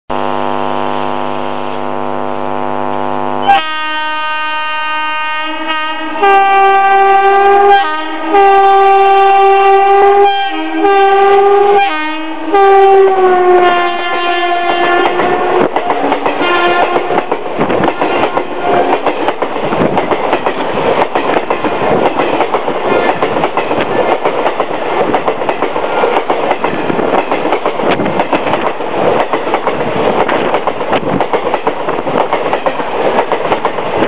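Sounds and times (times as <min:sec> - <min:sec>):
locomotive horn blasts: 0:00.1 - 0:15.7, 0:16.4 - 0:17.2
train wheels clattering on rails: 0:14.6 - 0:34.0.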